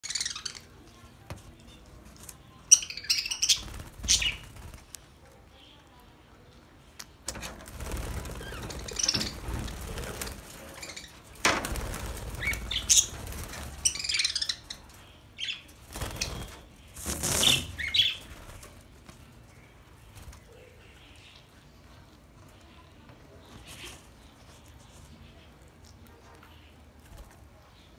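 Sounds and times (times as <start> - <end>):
birds flapping wings: 3.5 - 5.1, 7.3 - 14.5, 15.8 - 19.4.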